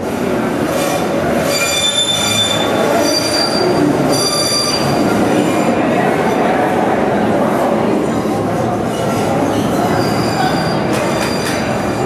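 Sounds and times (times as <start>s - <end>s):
subway train rumble: 0.0s - 12.0s
high-pitched metallic squeal: 0.8s - 5.6s, 9.5s - 12.0s.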